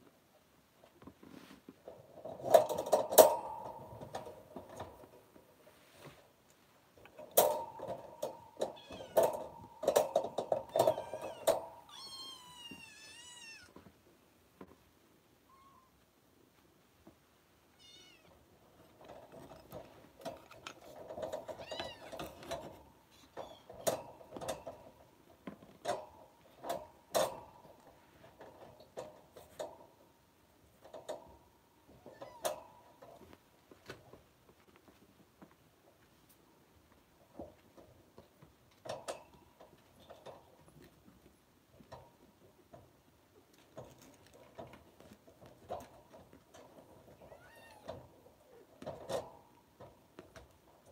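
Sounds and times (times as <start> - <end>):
sharp clicks and knocks: 6.5 - 11.9.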